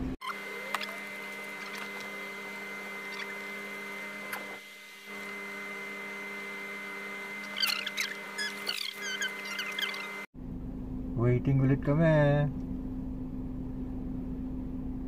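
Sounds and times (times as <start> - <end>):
high squeaky chirps: 3.0 - 3.7, 7.3 - 10.3.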